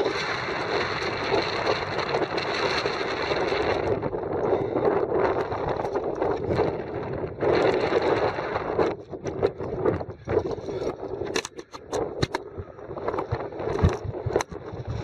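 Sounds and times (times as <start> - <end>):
wind buffeting microphone: 0.0 - 15.0
scrapes and knocks against rock: 9.2 - 12.4.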